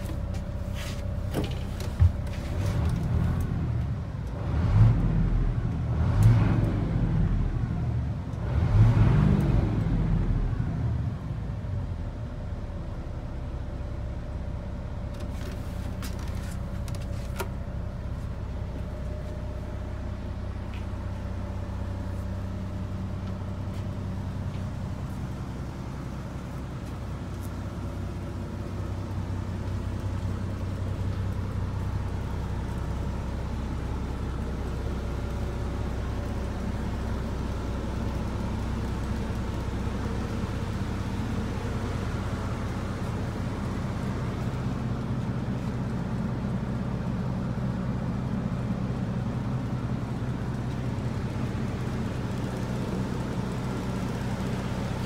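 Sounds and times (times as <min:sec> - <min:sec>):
diesel bus engine idling: 0:00.0 - 0:55.0.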